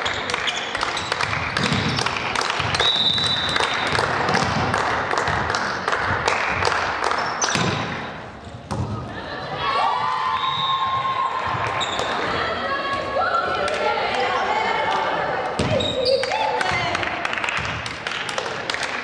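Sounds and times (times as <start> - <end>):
volleyball smacks and thuds: 1.6 - 2.8, 3.8 - 5.6, 7.5 - 8.0.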